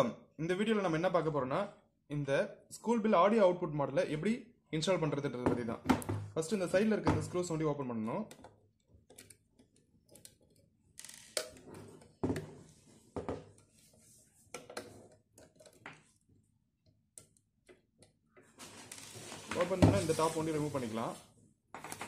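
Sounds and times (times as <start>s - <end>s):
screwdriver clicks and scrapes: 8.3s - 12.2s.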